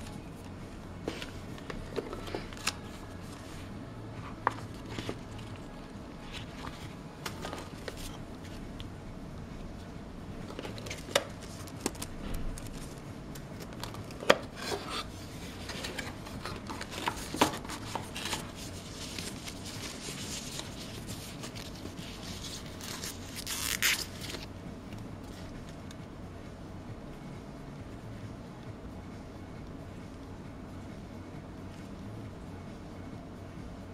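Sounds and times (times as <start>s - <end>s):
packaging rustling: 15.5s - 24.5s.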